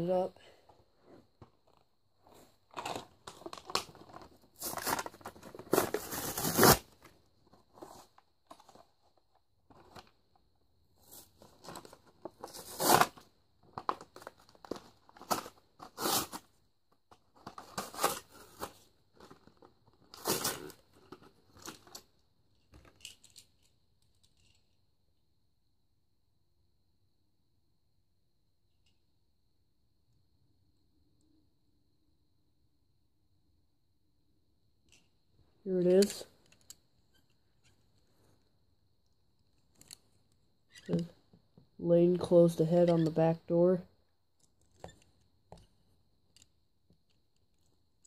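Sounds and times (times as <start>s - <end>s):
cardboard and plastic tearing: 2.7s - 7.1s, 11.5s - 16.5s, 17.3s - 21.9s.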